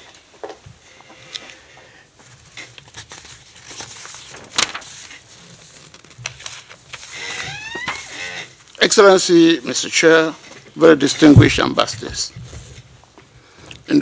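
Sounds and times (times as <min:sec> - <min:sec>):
microphone handling rustling and clicks: 0:10.4 - 0:13.9.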